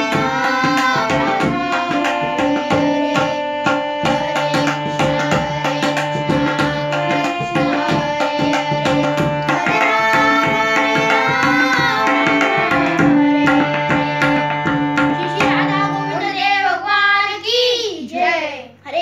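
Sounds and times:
tabla drumming: 0.0s - 16.8s
harmonium chords: 0.0s - 17.4s
child's voice: 15.2s - 19.0s.

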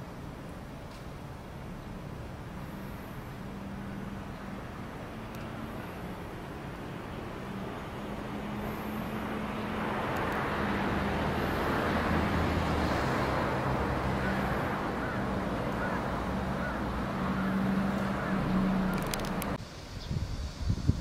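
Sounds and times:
vehicle passing by: 2.2s - 20.0s.

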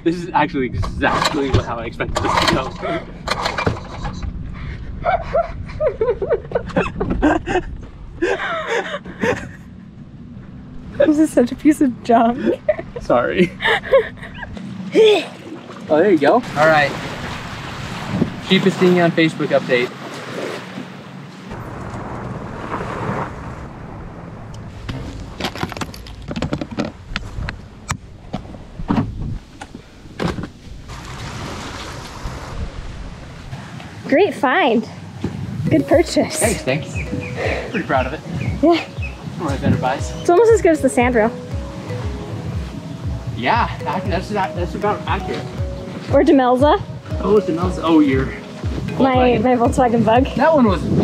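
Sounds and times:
steady low hum: 0.0s - 15.8s
water noise: 0.0s - 51.0s
wind: 0.0s - 51.0s
man laughing: 2.8s - 3.2s, 4.8s - 9.8s, 12.4s - 15.4s, 37.4s - 39.0s.

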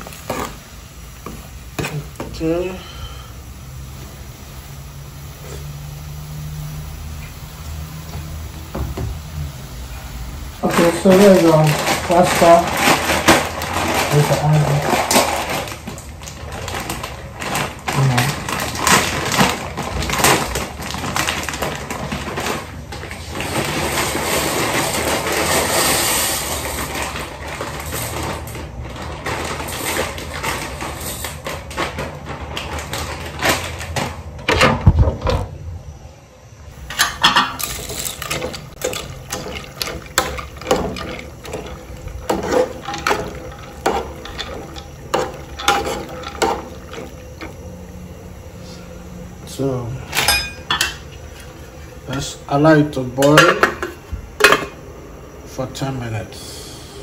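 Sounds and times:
crackles and knocks: 0.0s - 2.4s, 8.0s - 9.2s, 10.6s - 25.6s, 26.6s - 35.6s, 36.7s - 48.5s
plastic packet crinkling and tearing: 10.6s - 25.8s.

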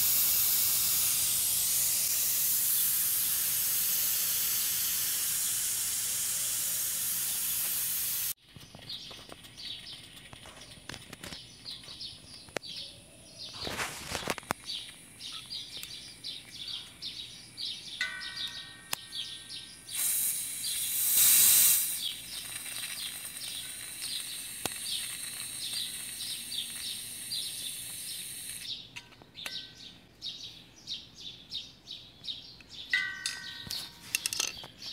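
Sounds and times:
propane valve hissing loudly: 0.0s - 8.4s, 19.8s - 28.7s
steady gas hiss: 0.0s - 8.4s, 18.6s - 28.7s
birds chirping: 8.4s - 34.9s.

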